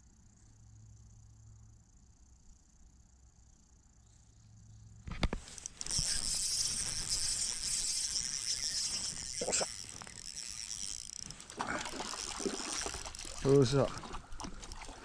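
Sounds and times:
fishing reel ratcheting buzz: 0:05.4 - 0:14.9.

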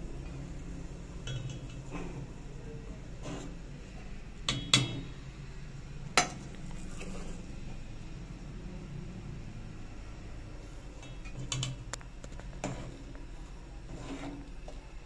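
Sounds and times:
metal ladle clinking on pots: 0:01.2 - 0:01.9, 0:04.5 - 0:05.1.

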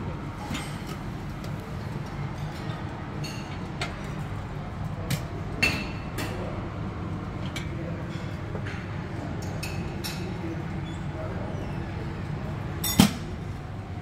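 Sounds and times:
cutlery and crockery clinking: 0:12.8 - 0:13.2.

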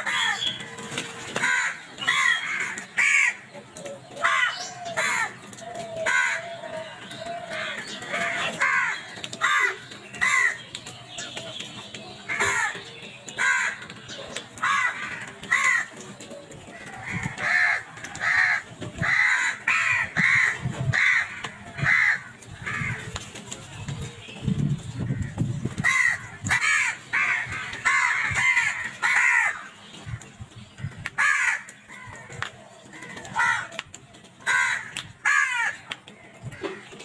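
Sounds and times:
crows cawing: 0:00.0 - 0:00.5, 0:01.4 - 0:03.5, 0:04.2 - 0:10.7, 0:12.3 - 0:14.0, 0:14.6 - 0:16.0, 0:16.7 - 0:23.1, 0:25.2 - 0:29.8, 0:30.8 - 0:33.8, 0:34.4 - 0:35.9.

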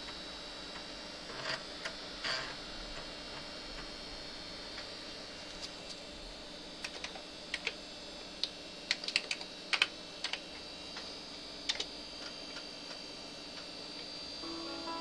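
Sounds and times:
steady high tone: 0:14.4 - 0:15.0.

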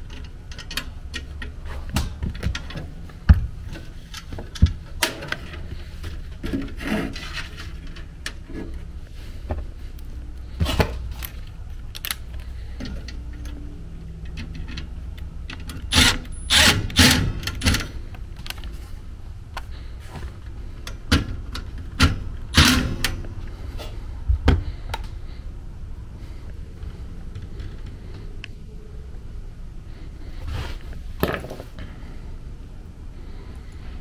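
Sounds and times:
screwdriver and metal parts clicking: 0:00.0 - 0:01.6, 0:11.1 - 0:13.6
steady low hum: 0:00.0 - 0:34.0.

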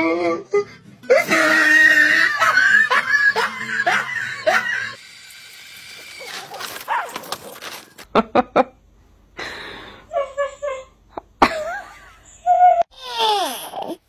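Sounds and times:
dogs barking: 0:06.5 - 0:07.5.

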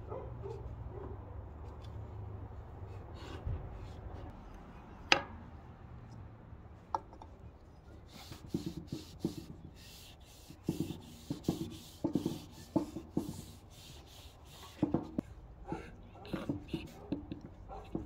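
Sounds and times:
cloth rubbing on wooden board: 0:08.1 - 0:15.2.

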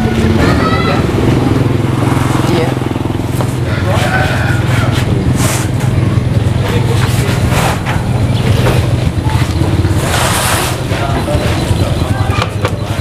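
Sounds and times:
truck engine idling: 0:00.0 - 0:13.0
cardboard parcels scraping: 0:09.9 - 0:11.2.

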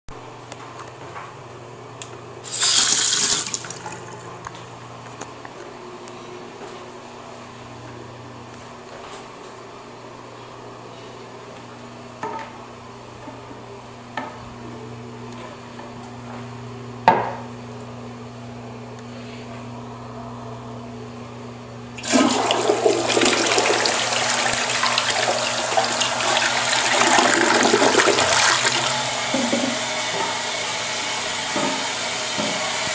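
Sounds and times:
toilet flushing water rush: 0:02.5 - 0:04.2, 0:22.0 - 0:32.9.

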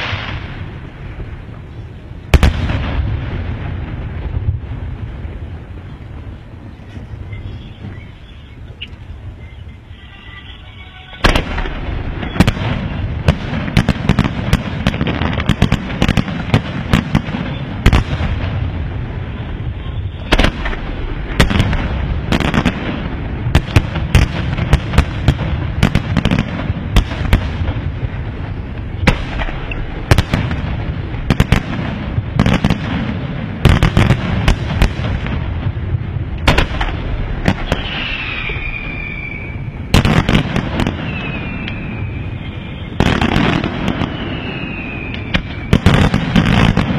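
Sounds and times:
continuous low rumble: 0:00.0 - 0:46.9
falling firework whistle: 0:06.8 - 0:14.2, 0:19.2 - 0:21.7, 0:37.5 - 0:46.8.

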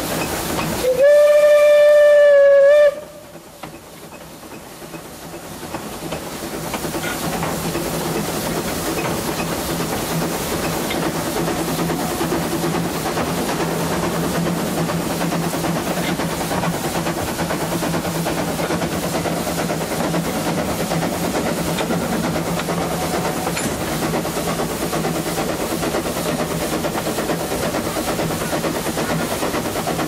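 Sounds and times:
train running noise: 0:00.0 - 0:30.0
steam locomotive whistle: 0:00.8 - 0:03.3.

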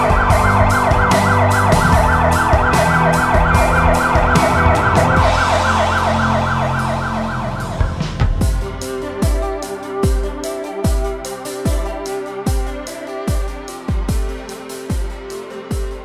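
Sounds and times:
fire engine siren yelping: 0:00.0 - 0:08.5
background music with steady beat: 0:00.0 - 0:16.0.

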